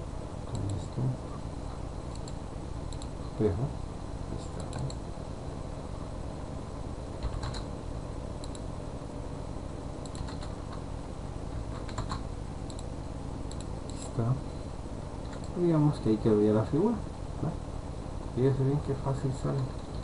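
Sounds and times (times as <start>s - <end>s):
low background hum: 0.0s - 20.0s
mouse and keyboard clicks: 0.5s - 1.0s, 2.1s - 3.2s, 4.6s - 5.0s, 7.2s - 7.7s, 8.4s - 8.6s, 10.0s - 10.8s, 11.7s - 12.9s, 13.5s - 14.1s.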